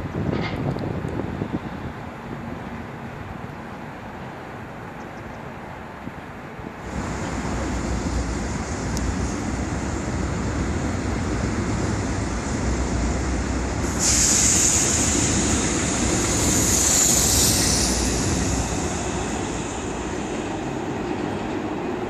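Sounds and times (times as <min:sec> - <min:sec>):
train rumbling on track: 0:00.0 - 0:22.0
high hissing squeal: 0:06.9 - 0:20.8.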